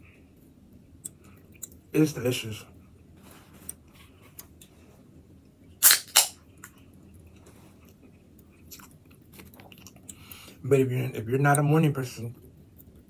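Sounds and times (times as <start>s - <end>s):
person chewing: 5.8s - 10.6s.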